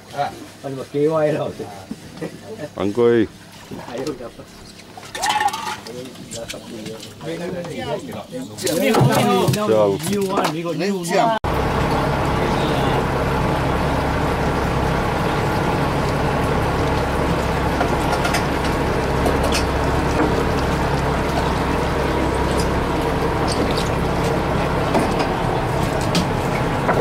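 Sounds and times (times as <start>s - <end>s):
water washing against hull: 0.0s - 10.4s, 11.4s - 27.0s
boat engine idling: 11.4s - 27.0s.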